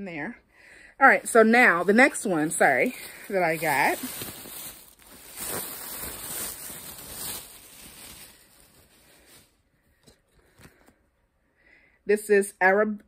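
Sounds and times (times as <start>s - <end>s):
plastic bag rustling: 1.1s - 10.9s.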